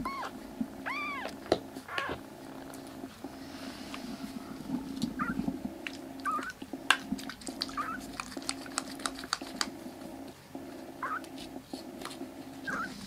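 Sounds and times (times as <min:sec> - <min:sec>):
kitten mewing: 0:00.0 - 0:02.2, 0:05.1 - 0:05.5
sharp ticks: 0:05.8 - 0:09.8.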